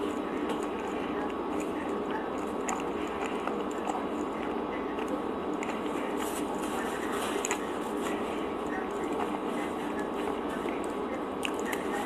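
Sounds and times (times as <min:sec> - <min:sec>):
steady background hum: 0:00.0 - 0:12.0
wet mouth chewing clicks: 0:00.4 - 0:06.5, 0:10.7 - 0:12.0.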